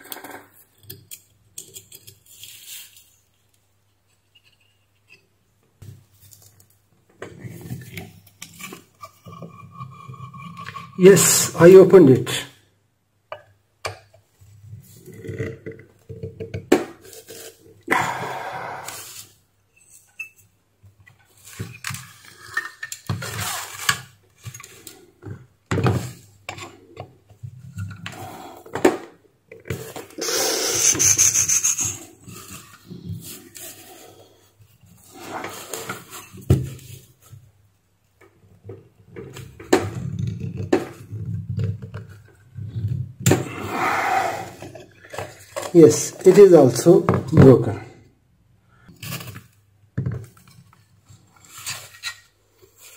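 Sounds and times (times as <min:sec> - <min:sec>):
metal parts rubbing and scraping: 0:21.3 - 0:24.8, 0:29.8 - 0:34.1.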